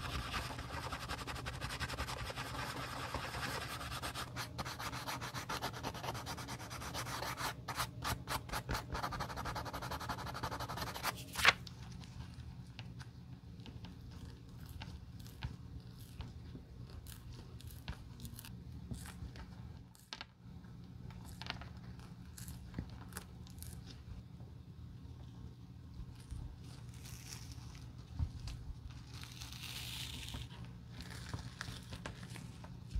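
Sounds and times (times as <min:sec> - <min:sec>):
sandpaper rubbing leather: 0:00.0 - 0:11.1.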